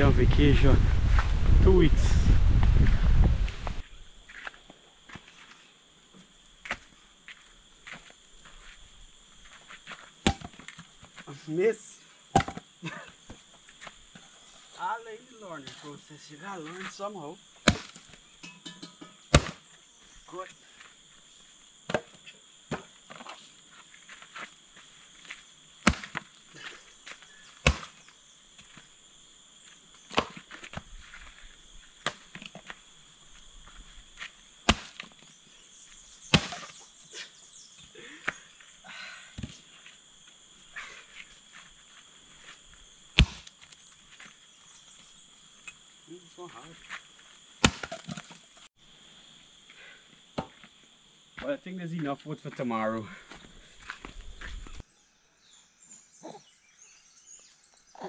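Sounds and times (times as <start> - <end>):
insect drone: 0.0 - 58.0
axe chopping firewood: 10.2 - 10.8, 12.4 - 12.6, 17.6 - 18.2, 19.3 - 19.6, 21.9 - 22.9, 25.8 - 26.3, 27.6 - 28.0, 30.1 - 30.7, 32.0 - 32.6, 34.6 - 35.2, 36.3 - 36.8, 43.2 - 43.7, 47.6 - 48.4, 50.4 - 50.6.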